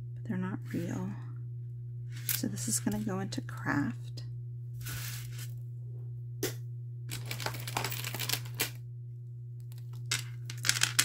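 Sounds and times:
steady low hum: 0.0s - 11.0s
rustling and crinkling packaging: 7.1s - 8.6s.

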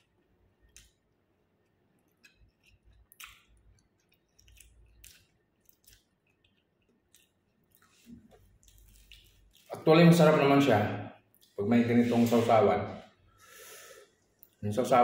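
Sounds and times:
chewing with mouth smacks: 1.6s - 9.8s.

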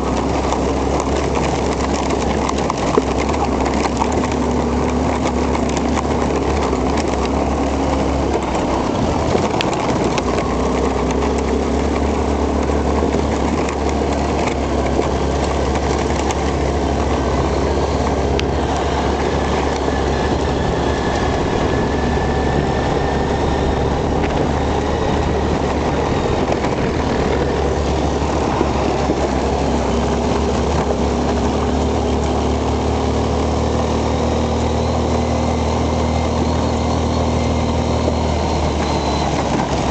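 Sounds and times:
quad bike engine droning: 0.0s - 39.9s
rumble of riding on gravel: 0.0s - 39.9s.

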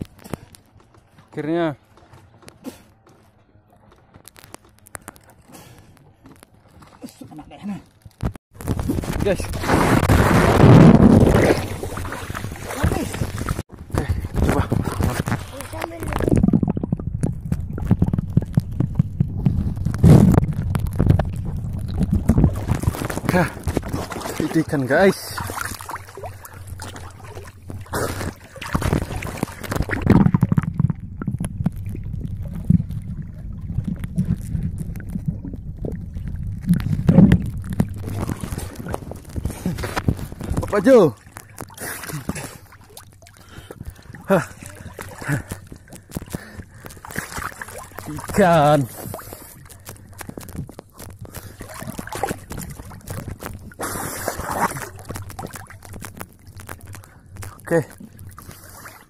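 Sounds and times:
clicks and knocks of gear: 1.9s - 6.6s
underwater gurgling and rumbling: 4.3s - 59.0s
water splashing: 4.4s - 59.0s.

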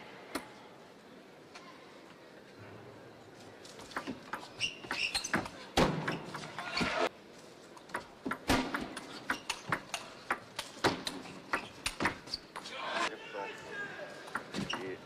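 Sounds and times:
table tennis ball clicking: 7.9s - 12.6s.

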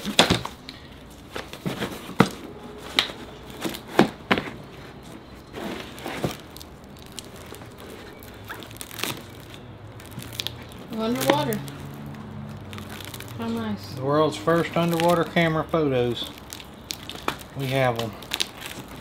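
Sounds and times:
items knocking in boxes: 0.0s - 0.6s
cardboard and paper rustling: 0.0s - 13.8s, 14.5s - 19.0s.

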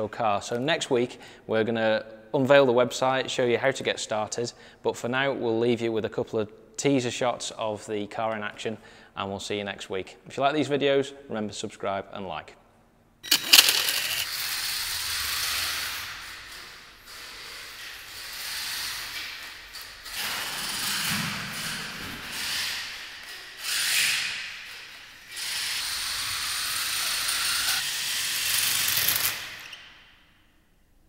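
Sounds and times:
toy car motor and gears whirring: 13.2s - 21.1s, 22.4s - 29.9s.

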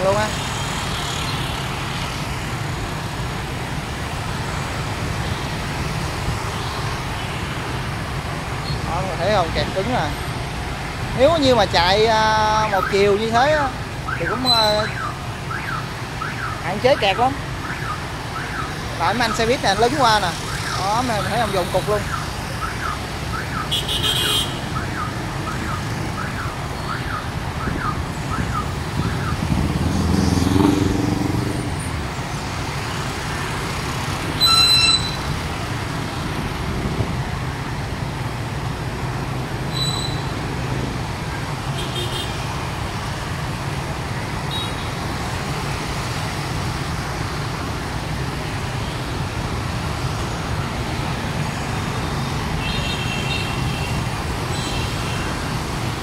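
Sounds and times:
hum of idling traffic engines: 0.0s - 56.0s
engine revving: 29.3s - 31.8s.

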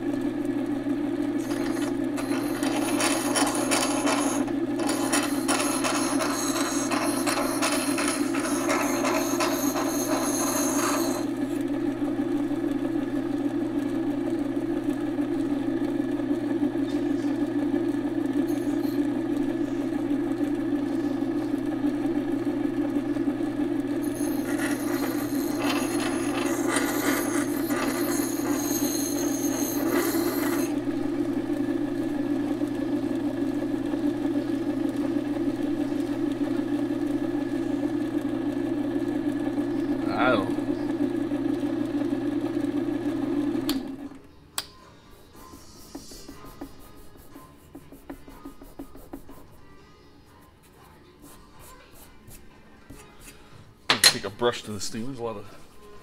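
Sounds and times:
electric motor humming: 0.0s - 44.2s.

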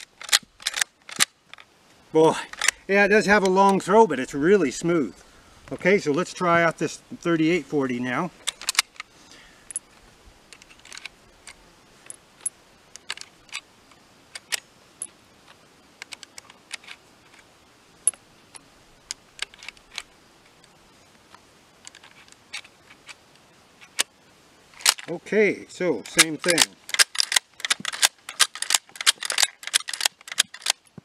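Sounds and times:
cartridges clicking into rifle: 26.0s - 31.0s.

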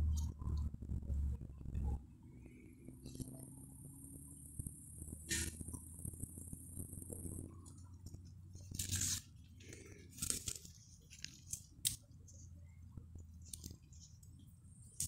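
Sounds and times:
leaves rustling and crackling: 7.7s - 12.0s.

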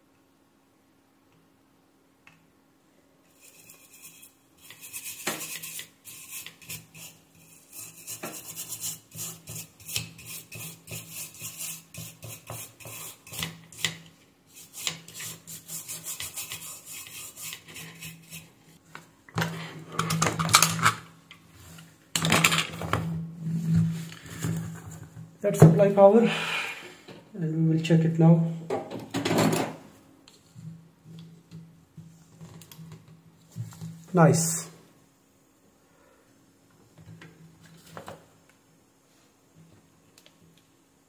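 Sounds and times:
faint steady hum: 0.0s - 41.0s
brush scrubbing circuit board: 3.3s - 13.9s, 14.5s - 18.6s
rustles and knocks of handling: 30.3s - 34.1s.

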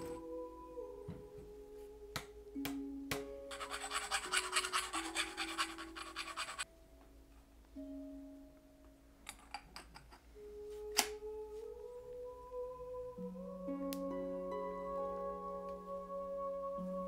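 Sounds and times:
background music: 0.0s - 17.0s.

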